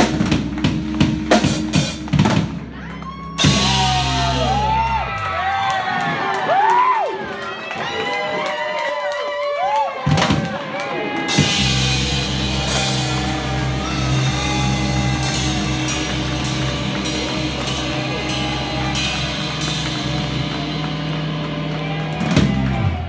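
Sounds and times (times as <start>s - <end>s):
rock band holding chord: 0.0s - 2.7s, 3.4s - 5.3s, 11.1s - 23.0s
drum fills: 0.0s - 7.0s, 10.1s - 23.0s
cymbal crashes: 11.4s - 22.0s.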